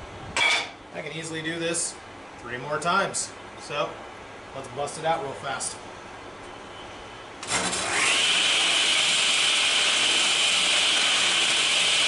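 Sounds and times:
table saw motor whine: 7.4 - 12.0.

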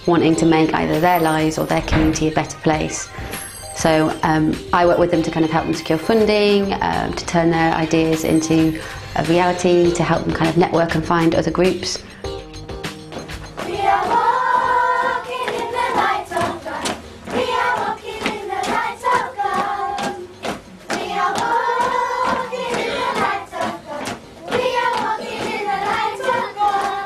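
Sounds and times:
children singing together: 13.6 - 27.0
hand claps: 15.1 - 27.0.

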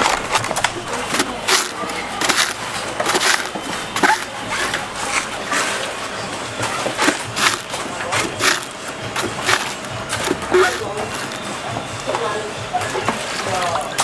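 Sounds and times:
knife chopping coconuts: 0.0 - 5.7, 6.8 - 11.5.

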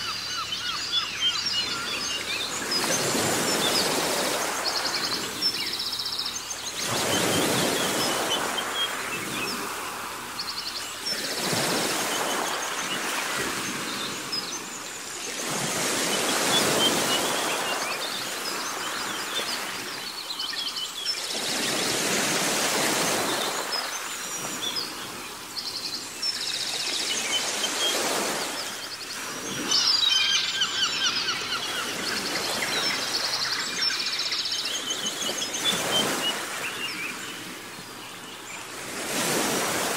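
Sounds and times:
small birds chirping and trilling: 0.0 - 39.9.

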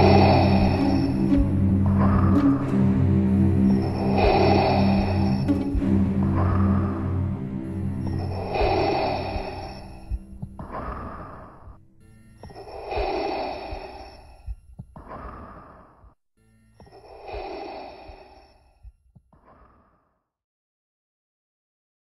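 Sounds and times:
mechanical respirator breathing: 0.0 - 20.0.

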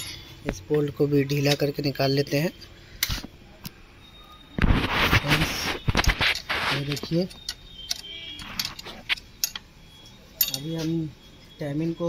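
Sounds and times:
metallic clicks of spanner and bolt: 7.3 - 9.7, 10.4 - 10.7.

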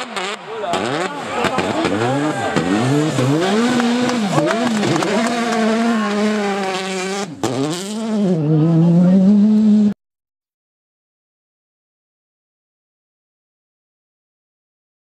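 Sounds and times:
rally car engine revving: 0.0 - 10.0.

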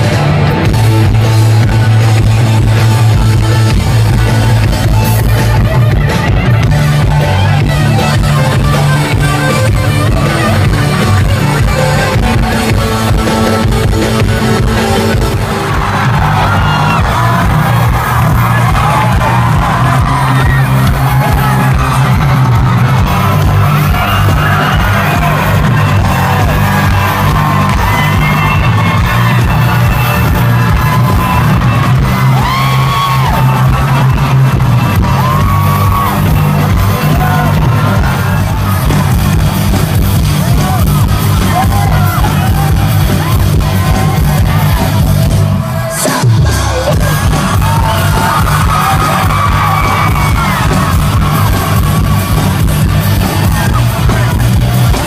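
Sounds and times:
booming bass: 0.0 - 45.6, 46.2 - 55.0
audience yelling: 0.0 - 55.0
live rock band: 0.0 - 55.0.

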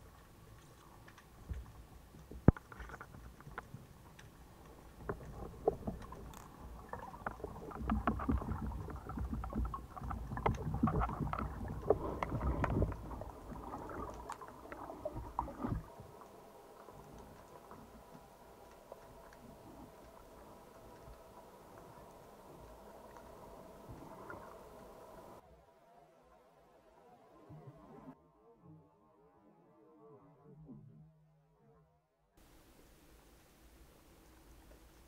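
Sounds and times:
bubbling water with clicks: 0.0 - 25.4.

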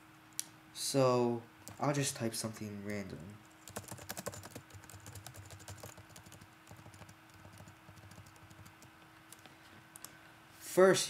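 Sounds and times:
keyboard typing: 3.6 - 8.9.

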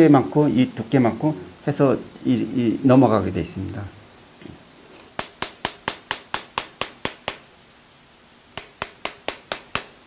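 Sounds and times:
hammer tapping punch on metal: 5.2 - 7.4, 8.6 - 10.0.

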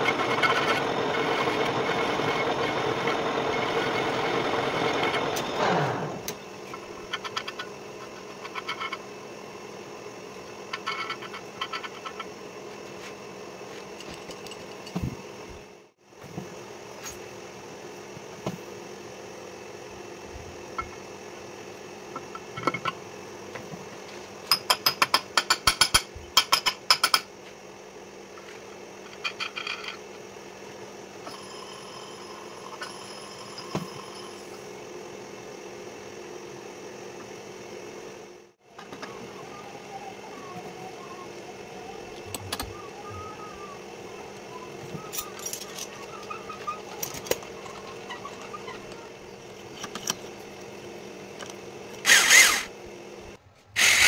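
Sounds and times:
machinery hum: 0.0 - 24.5, 27.4 - 54.0.

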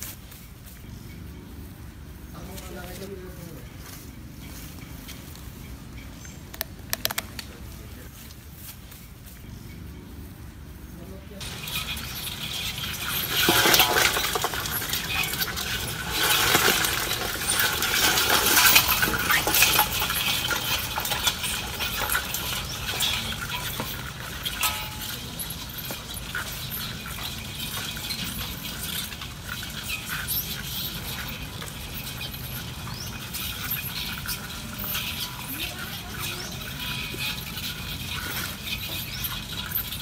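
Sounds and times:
crabs clicking on metal basin: 11.4 - 40.0.

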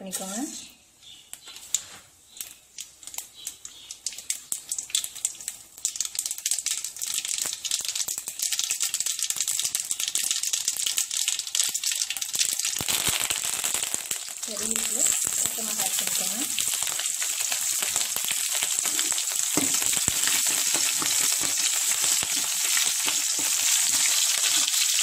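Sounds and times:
seeds popping in hot oil: 0.0 - 25.0.

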